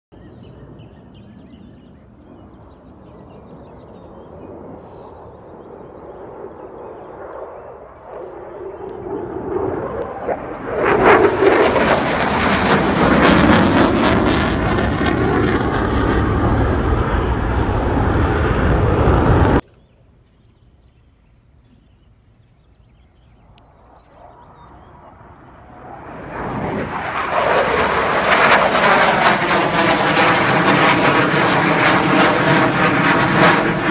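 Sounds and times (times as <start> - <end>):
jet engine passing overhead: 0.2 - 19.6, 23.2 - 33.9.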